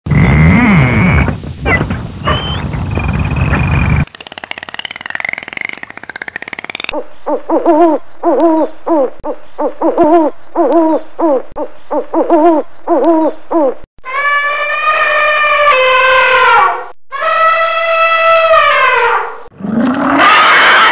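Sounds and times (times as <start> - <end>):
dolphin clicks and whistles: 1.7 - 2.6, 4.3 - 7.0.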